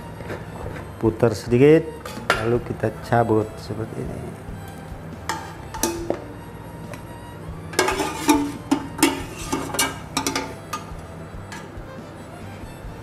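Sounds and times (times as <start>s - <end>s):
metal ladle clinking in pot: 5.3s - 6.2s, 7.8s - 11.7s.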